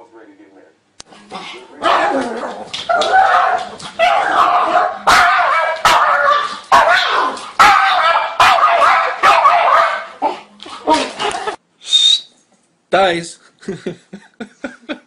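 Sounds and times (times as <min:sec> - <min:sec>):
dog barking and yowling: 0:01.8 - 0:11.6.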